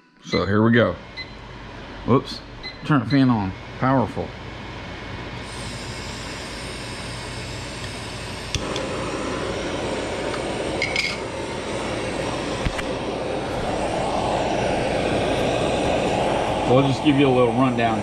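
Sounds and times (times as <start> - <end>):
fan running: 0.3 - 18.0
butane torch hissing: 5.4 - 18.0.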